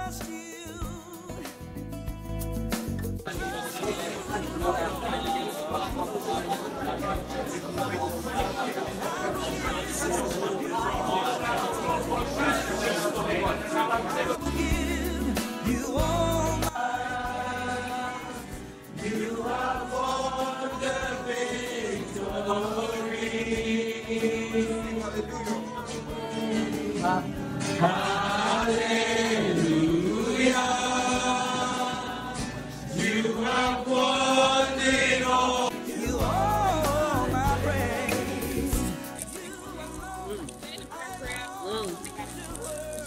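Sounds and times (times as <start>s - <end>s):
keyboard and bass accompaniment: 0.0s - 43.0s
group of voices singing: 3.2s - 43.0s.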